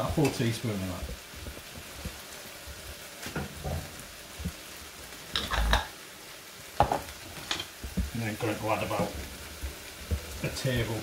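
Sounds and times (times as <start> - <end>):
meat sizzling in a frying pan: 0.0 - 11.0
scrapes and knocks on pan: 6.8 - 8.1.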